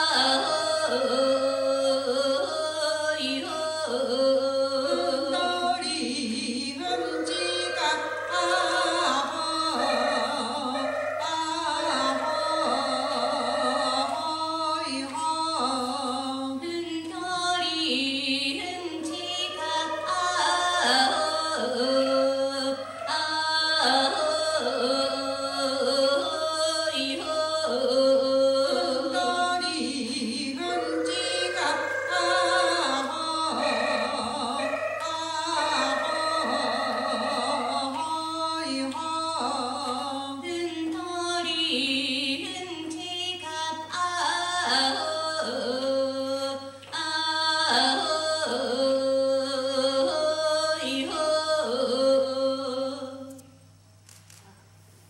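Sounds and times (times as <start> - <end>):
voices singing dance song: 30.2 - 38.0.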